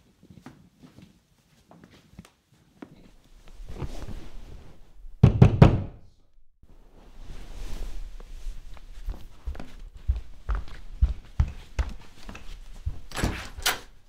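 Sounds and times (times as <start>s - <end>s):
loud heavy knocks: 5.2s - 6.0s
soft footsteps: 6.7s - 14.0s.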